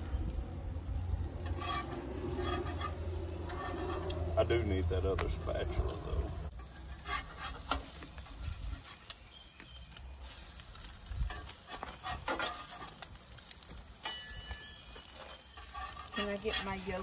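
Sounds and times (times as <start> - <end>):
wind rumbling on microphone: 0.0 - 6.5, 8.2 - 8.9, 10.6 - 12.3
eggs frying on griddle: 0.0 - 17.0
metal spatula scraping griddle: 1.3 - 9.4, 10.2 - 17.0.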